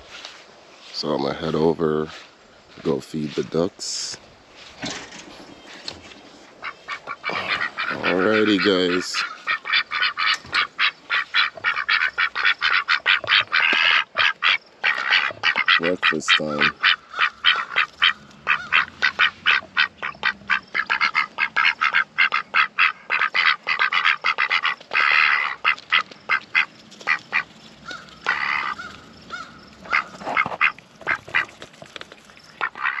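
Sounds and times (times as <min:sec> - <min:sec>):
ducks quacking: 0:05.8 - 0:31.8, 0:32.5 - 0:33.0
duck bills clicking and snapping: 0:06.9 - 0:33.0.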